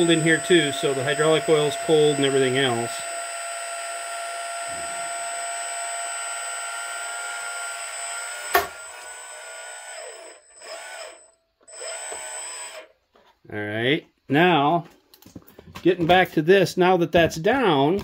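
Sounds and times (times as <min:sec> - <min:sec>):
small hydraulic pump whining: 0:00.0 - 0:13.3.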